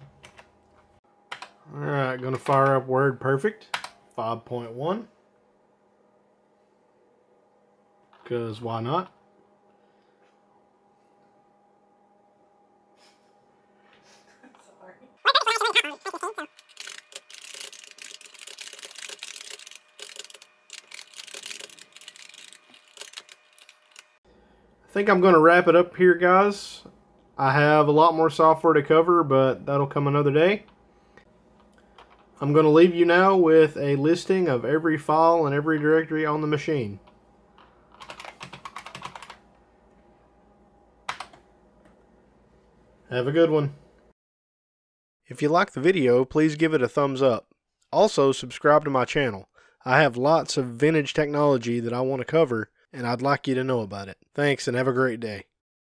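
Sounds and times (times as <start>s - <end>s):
fast keyboard typing: 15.5s - 24.2s, 37.9s - 39.4s, 41.1s - 41.4s.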